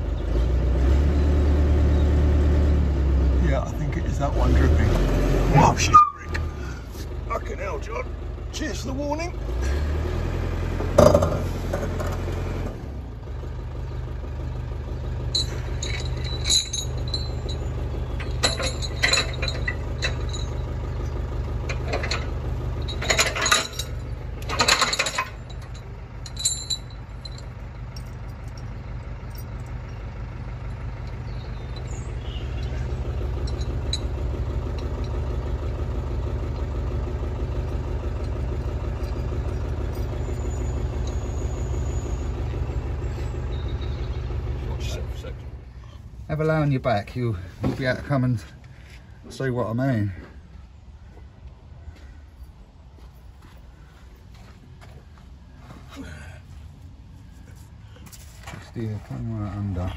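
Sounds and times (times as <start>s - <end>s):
vehicle engine idling: 0.0s - 59.9s
metal chain rattling: 15.3s - 35.4s, 37.6s - 42.3s.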